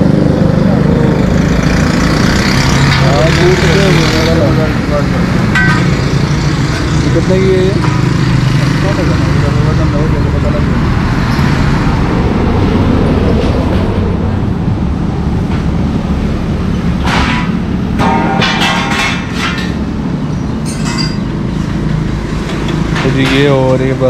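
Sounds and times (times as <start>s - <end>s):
road traffic engine rumble: 0.0s - 24.0s
sharp knocks and clatter: 2.1s - 4.5s, 5.3s - 9.5s, 16.8s - 24.0s.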